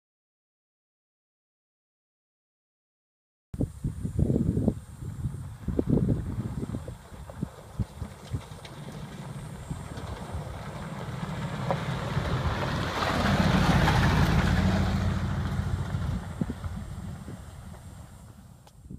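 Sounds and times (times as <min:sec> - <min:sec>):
van driving past on dirt road: 0:05.3 - 0:18.6.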